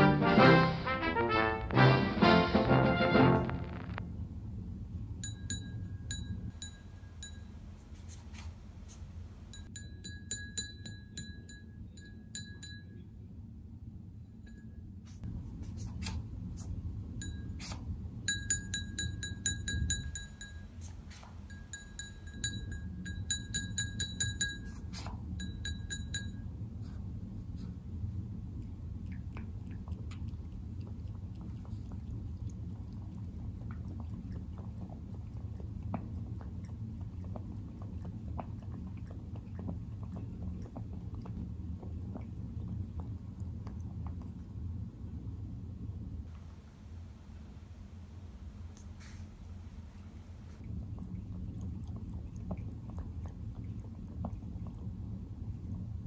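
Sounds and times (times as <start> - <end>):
cat lapping water: 26.8 - 45.4, 50.4 - 56.0.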